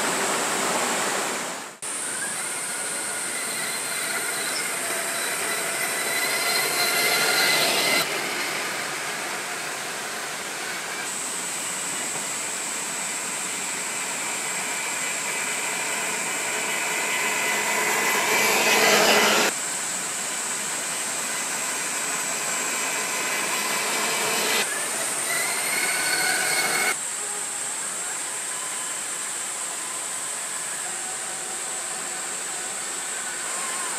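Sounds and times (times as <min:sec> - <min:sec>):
steady high hiss: 0:00.0 - 0:33.9
toy truck motor whirring: 0:02.1 - 0:11.1, 0:21.6 - 0:27.0.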